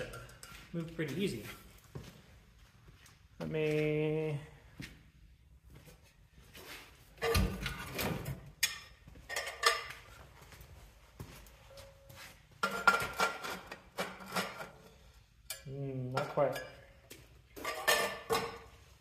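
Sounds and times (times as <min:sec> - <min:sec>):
metal tubing clanking and rattling: 0:17.6 - 0:18.8.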